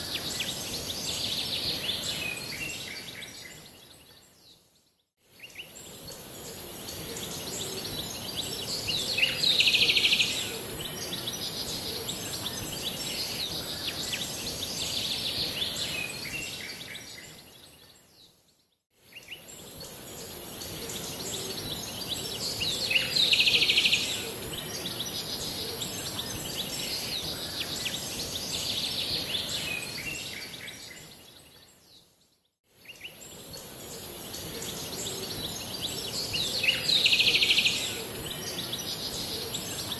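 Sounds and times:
steady high hiss: 5.4 - 17.0, 19.1 - 30.7, 33.1 - 39.9.

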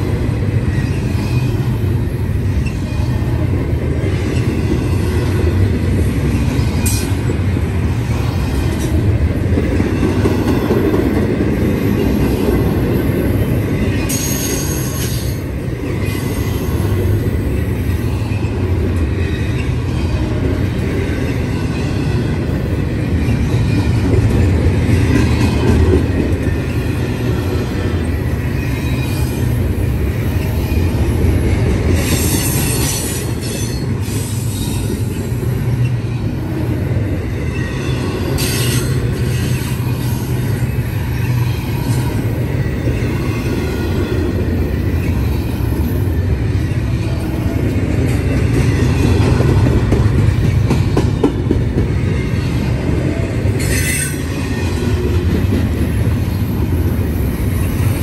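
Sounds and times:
train wheels rumbling on rail: 0.0 - 58.0
high-pitched wheel squeals: 53.6 - 54.6.

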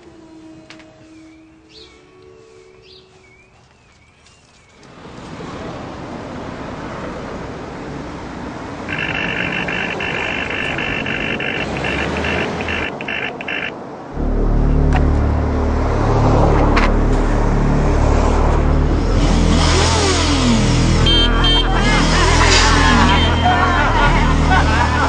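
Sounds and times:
street noise: 0.0 - 25.0
high-pitched pulsing tone: 8.9 - 23.8
music with deep bass line: 14.2 - 25.0.

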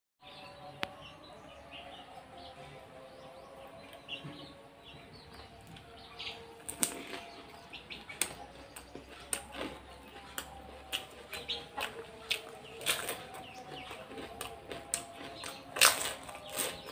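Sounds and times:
chewing crunchy shells: 6.6 - 16.9.

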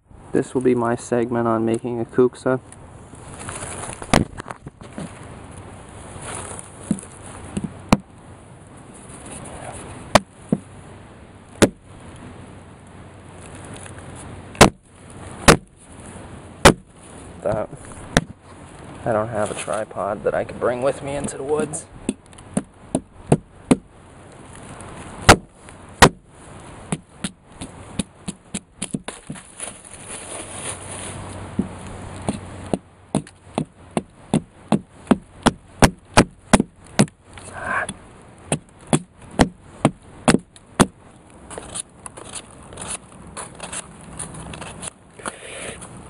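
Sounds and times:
blade chopping green wood: 4.0 - 5.1, 6.8 - 8.1, 10.1 - 10.7, 11.6 - 11.8, 14.6 - 15.7, 16.6 - 16.9, 17.5 - 18.4, 21.2 - 23.9, 25.2 - 26.2, 26.8 - 29.5, 31.5 - 37.2, 37.8 - 41.0.

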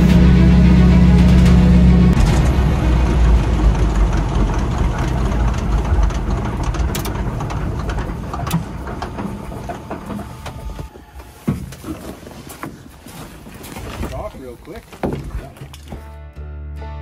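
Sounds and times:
propeller plane engine winding down: 0.0 - 10.9.

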